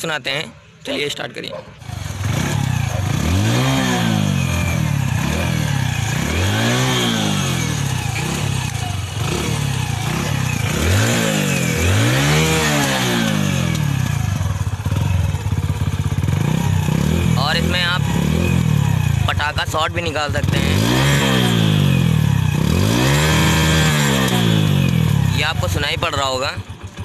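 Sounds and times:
motorcycle engine idling and revving: 0.6s - 27.0s.

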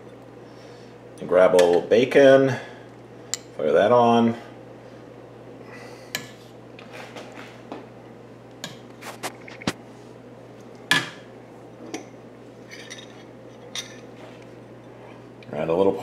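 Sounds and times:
utensils clinking on ceramic bowls: 12.7s - 14.1s.

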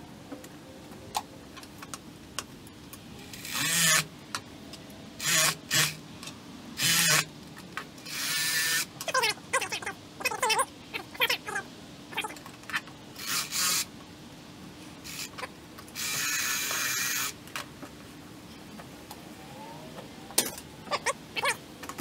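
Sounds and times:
electric knife running: 3.2s - 4.1s, 5.2s - 6.0s, 6.8s - 7.3s, 8.1s - 8.9s, 13.2s - 13.9s, 15.0s - 17.4s
rising-and-falling cries: 19.1s - 21.6s.

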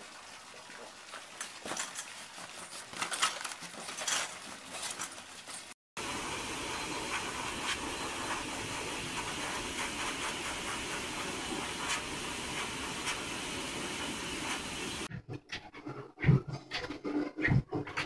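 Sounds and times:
steady rushing hiss: 6.0s - 15.1s.

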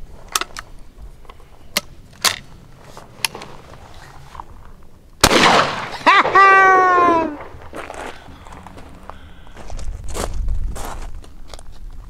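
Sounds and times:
shotgun action metallic clicks: 1.7s - 2.5s
loud shotgun shot ringing: 5.2s - 7.6s.

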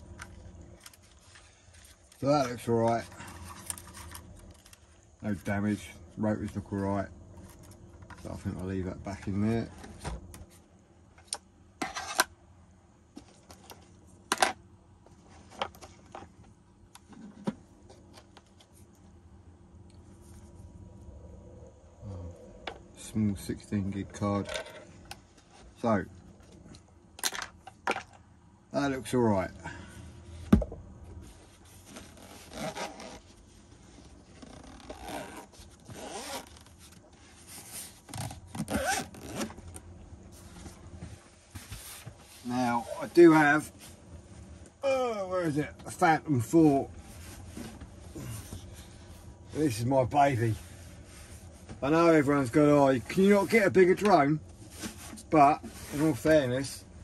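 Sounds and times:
zipper of fabric case closing: 31.8s - 33.4s, 34.3s - 36.9s, 37.9s - 39.8s.

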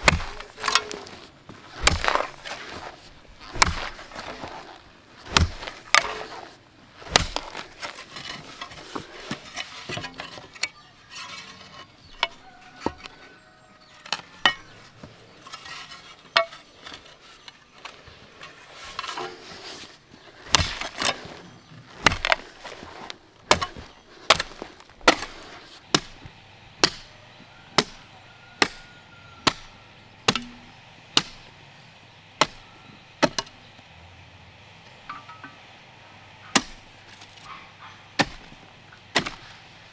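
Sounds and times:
hand tool striking wood: 0.0s - 1.2s, 1.8s - 4.6s, 5.3s - 6.5s, 7.1s - 10.7s, 20.5s - 21.2s, 22.0s - 27.1s, 27.8s - 29.7s, 30.3s - 31.4s, 33.2s - 33.5s, 36.5s - 37.6s, 38.2s - 39.5s.

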